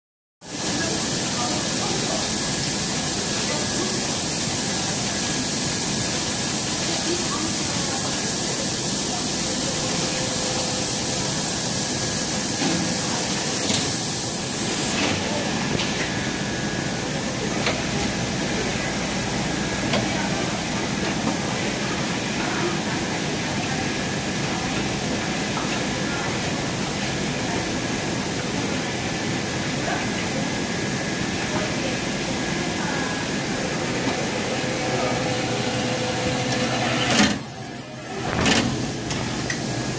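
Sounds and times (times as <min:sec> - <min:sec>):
machinery and air hiss: 0:00.5 - 0:39.9.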